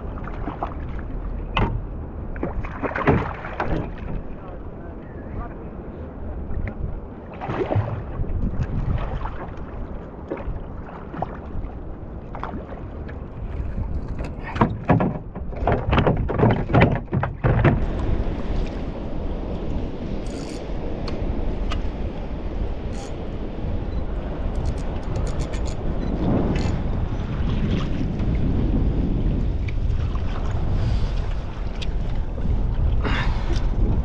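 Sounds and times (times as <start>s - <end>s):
water slapping against kayak: 0.0s - 4.6s, 6.4s - 23.0s, 24.5s - 34.0s
knocks and thumps on hull: 1.5s - 4.3s, 13.5s - 18.2s.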